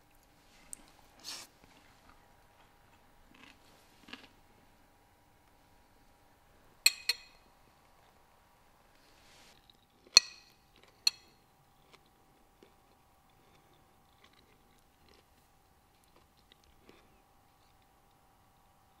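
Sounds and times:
cutlery clinking on dish: 10.1s - 11.4s.

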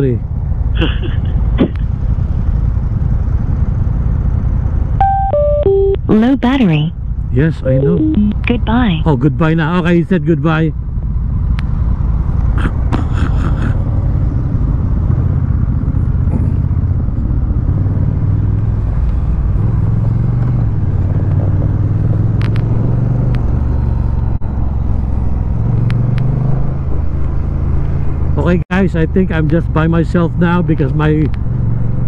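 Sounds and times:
motorcycle engine running: 5.8s - 32.0s
recording crackling clicks: 22.3s - 22.7s, 23.3s - 23.5s, 31.2s - 31.5s.

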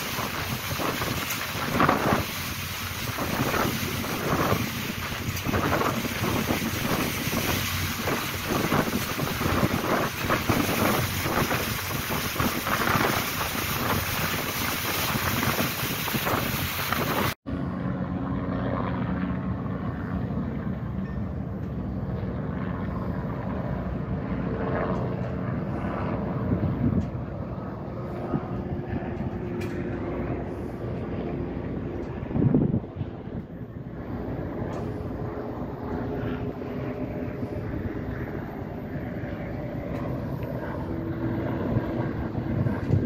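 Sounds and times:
boat wake rushing: 0.0s - 17.4s
wind buffeting microphone: 0.0s - 17.4s, 22.0s - 43.0s
ferry engine hum: 0.0s - 43.0s.

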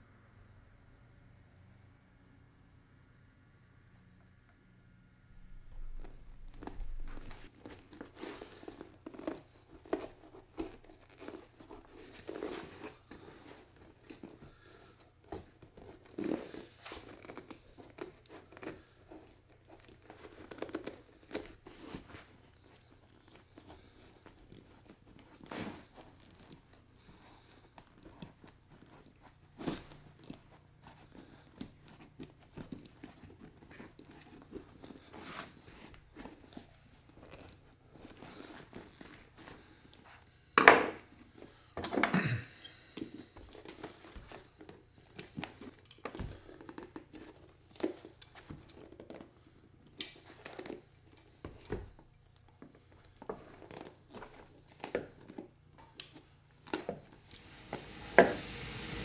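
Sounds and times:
rubber sole scraping and tearing: 5.4s - 26.8s.

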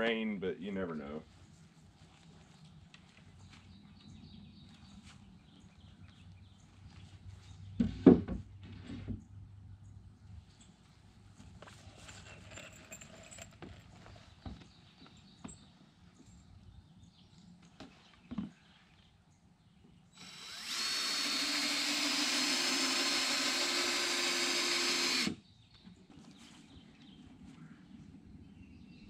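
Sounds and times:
light knocks of boards and tools: 7.8s - 9.2s
cordless drill driving screw: 20.2s - 25.4s.

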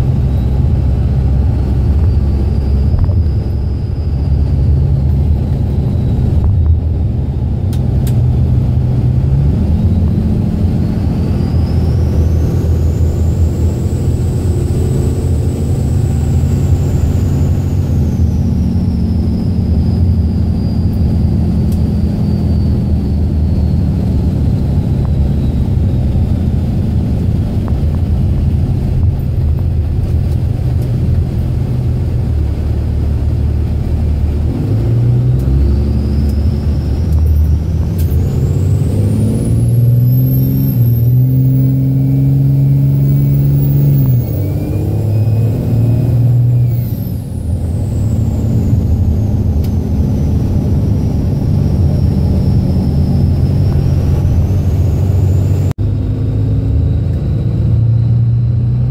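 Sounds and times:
diesel engine running from inside cab: 0.0s - 58.9s
thin high whistle: 1.9s - 6.4s, 10.8s - 25.9s, 35.5s - 50.2s.

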